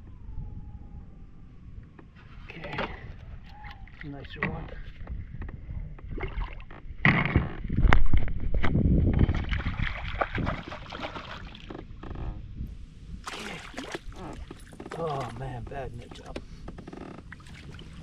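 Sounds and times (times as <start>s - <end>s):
fish splashing and thrashing: 8.3s - 11.9s, 13.2s - 16.2s, 17.1s - 18.0s.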